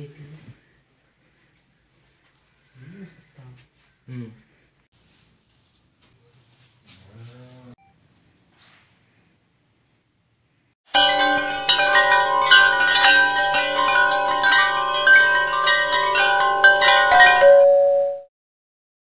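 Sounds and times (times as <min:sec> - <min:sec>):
tinkling chime music: 0:10.9 - 0:18.3.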